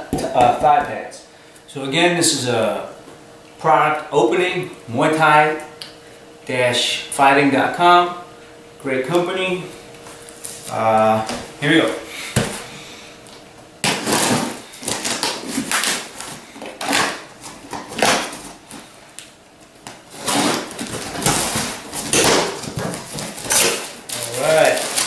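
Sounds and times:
knife slicing packing tape: 13.8s - 18.4s, 20.2s - 25.0s.

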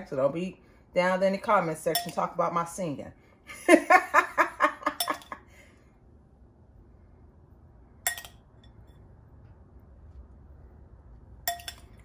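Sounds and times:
metal spoon clinking glass dish: 1.9s - 2.2s, 5.0s - 5.3s, 8.1s - 9.0s, 11.5s - 12.0s.

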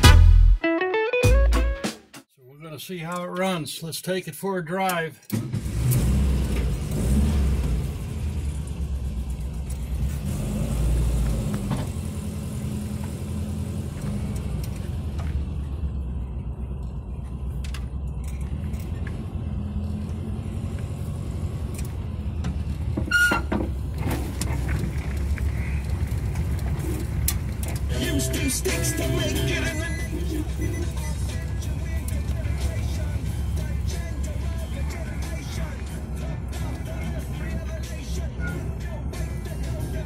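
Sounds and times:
van engine running: 5.4s - 40.0s
squeak and clatter: 22.9s - 27.9s.

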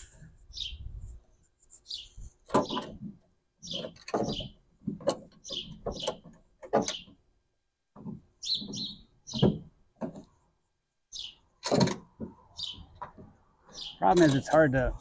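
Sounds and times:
c-clamps squeaking and creaking: 2.4s - 7.2s, 11.6s - 14.7s.

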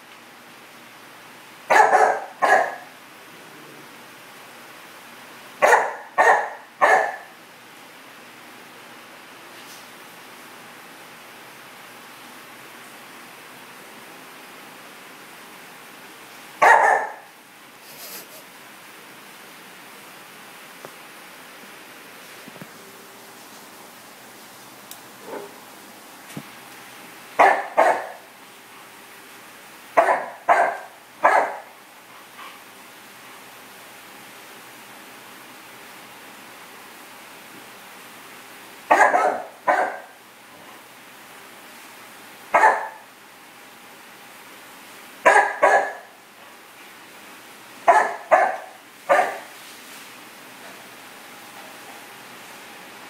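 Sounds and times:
dog barking: 1.7s - 3.0s, 5.6s - 7.4s, 16.6s - 17.3s, 25.2s - 25.6s, 27.4s - 28.2s, 30.0s - 31.7s, 38.9s - 40.2s, 42.5s - 43.0s, 45.2s - 46.2s, 47.8s - 49.5s.

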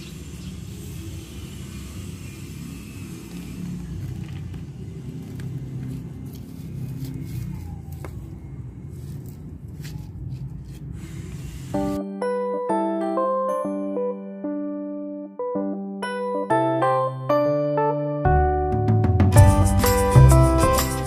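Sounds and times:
hands working potting soil: 3.7s - 11.0s.

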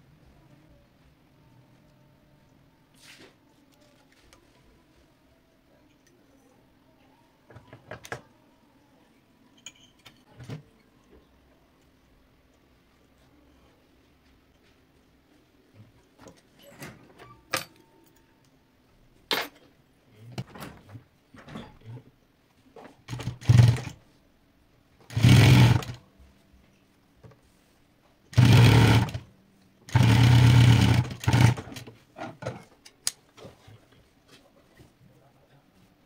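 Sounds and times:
sewing machine stitching: 23.1s - 24.0s, 25.1s - 26.0s, 28.3s - 29.3s, 29.9s - 31.9s
sewing machine clicks: 28.4s - 29.2s, 29.9s - 31.8s.

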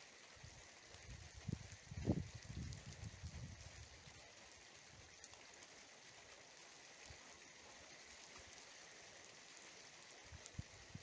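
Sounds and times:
faint steady hiss: 0.0s - 11.0s
faint ticks: 5.1s - 10.8s.

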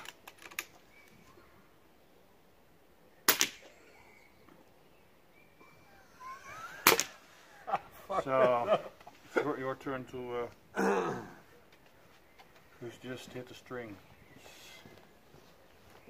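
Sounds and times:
air rifle shots: 3.2s - 3.7s, 6.8s - 7.2s.

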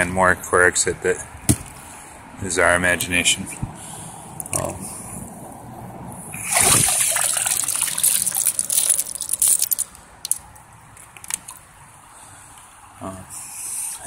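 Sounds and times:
water splashing and trickling: 6.3s - 10.4s.

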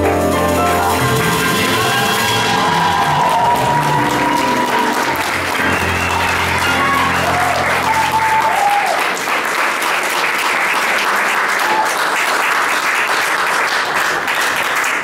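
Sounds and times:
audience applauding: 0.5s - 15.0s.

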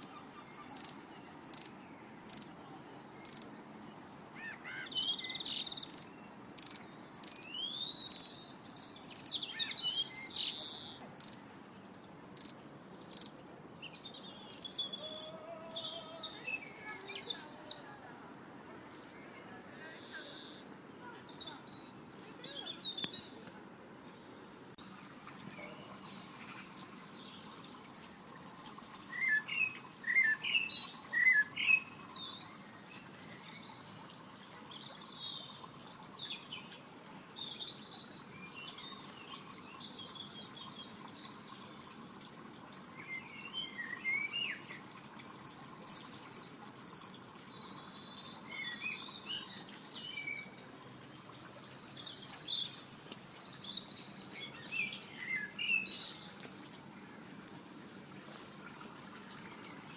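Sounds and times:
birds chirping and singing: 0.0s - 2.5s, 4.4s - 11.4s, 12.3s - 18.2s, 25.6s - 41.9s, 43.0s - 56.4s
faint background hiss: 0.0s - 59.9s.

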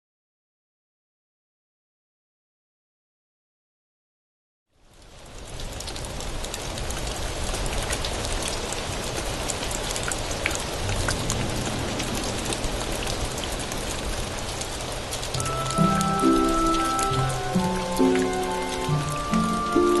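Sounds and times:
raindrops ticking on surfaces: 4.7s - 20.0s
steady rain falling: 4.7s - 20.0s.

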